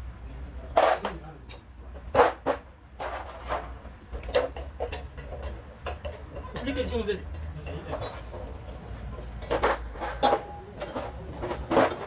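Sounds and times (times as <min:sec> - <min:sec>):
metal parts and tools clinking: 0:09.4 - 0:12.0.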